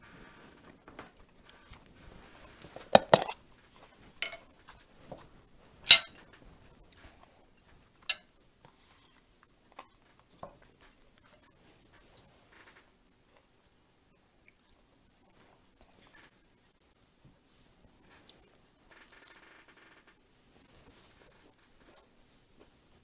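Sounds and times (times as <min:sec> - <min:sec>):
cutlery clinking on china plate: 0:04.2 - 0:04.5, 0:05.9 - 0:06.2.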